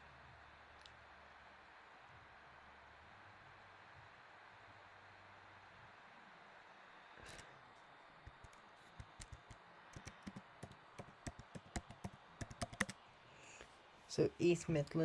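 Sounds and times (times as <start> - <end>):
typing on computer keyboard: 8.3 - 13.0.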